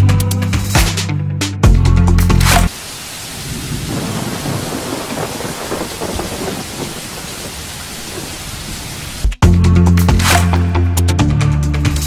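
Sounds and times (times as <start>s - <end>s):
heavy rain falling: 2.5s - 9.4s
thunder rumbling: 2.8s - 9.4s.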